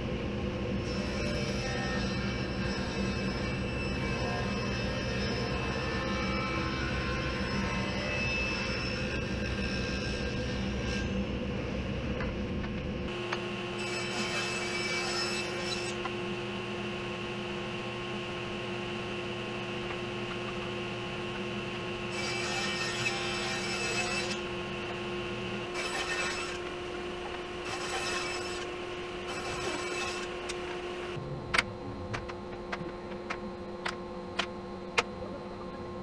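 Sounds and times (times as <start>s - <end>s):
saw cutting wood: 13.1s - 16.9s, 18.7s - 31.2s
table saw motor hum: 13.1s - 31.2s.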